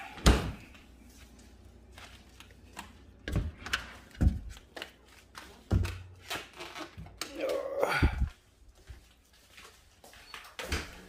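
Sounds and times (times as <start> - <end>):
footsteps: 7.0 - 11.0.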